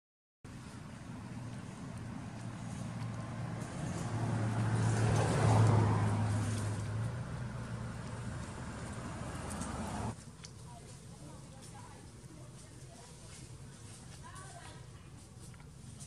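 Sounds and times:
vehicle passing by: 0:00.5 - 0:10.2.

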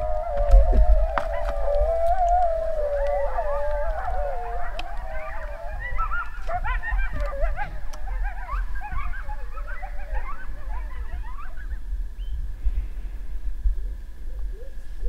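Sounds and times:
coyote howling: 0:00.0 - 0:11.9
coyotes yipping: 0:00.0 - 0:12.4.

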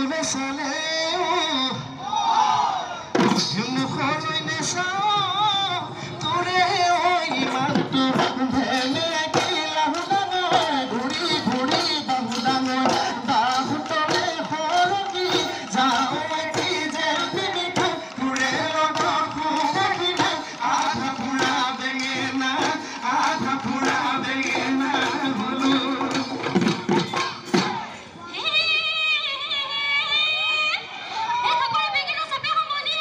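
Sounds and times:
drums beaten rapidly: 0:03.1 - 0:28.1
person singing: 0:03.5 - 0:29.7.

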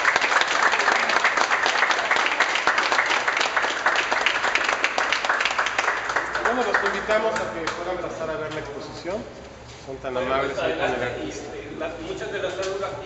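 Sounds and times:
audience applauding: 0:00.0 - 0:07.9
person clapping close by: 0:00.0 - 0:07.9.

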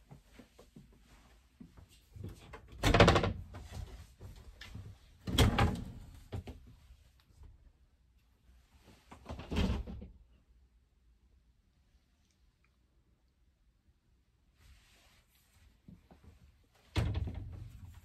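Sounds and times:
wooden door thudding and scraping: 0:02.6 - 0:04.0, 0:16.9 - 0:17.9.

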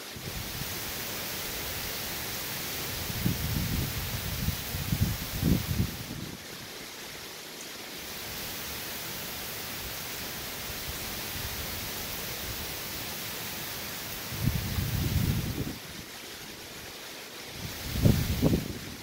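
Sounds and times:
wind-driven rain hissing: 0:00.0 - 0:19.0
wind buffeting microphone: 0:02.9 - 0:06.4, 0:14.2 - 0:16.0, 0:17.6 - 0:19.0.

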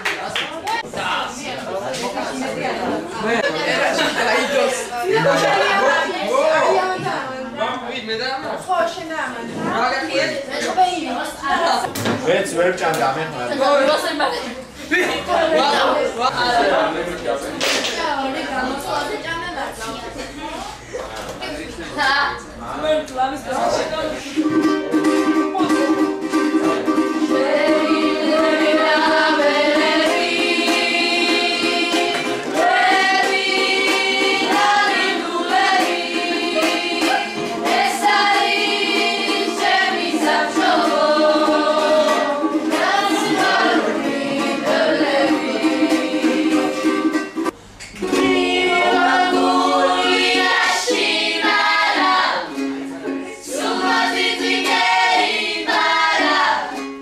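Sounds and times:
strummed strings: 0:24.2 - 0:57.0
voices singing: 0:25.4 - 0:57.0.

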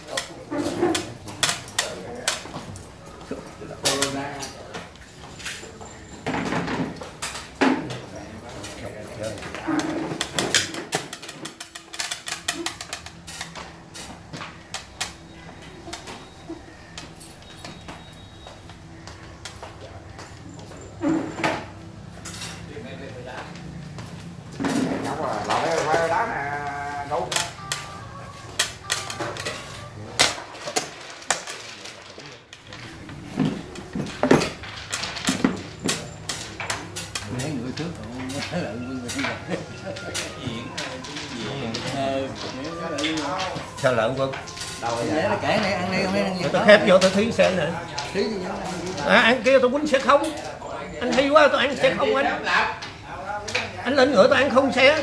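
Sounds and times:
game pieces clicking on wooden board: 0:09.7 - 0:13.7, 0:34.0 - 0:45.4.

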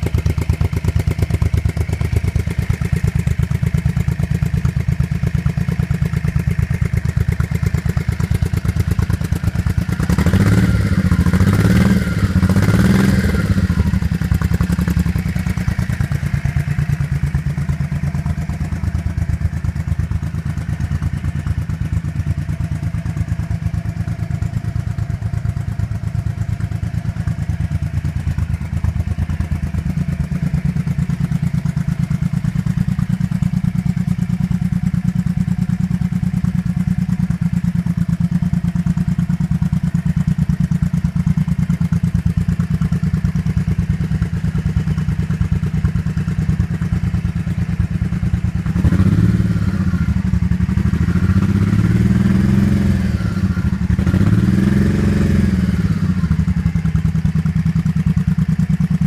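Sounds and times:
motorcycle engine idling: 0:00.0 - 0:59.0
engine revving: 0:07.8 - 0:17.9, 0:48.6 - 0:57.2.

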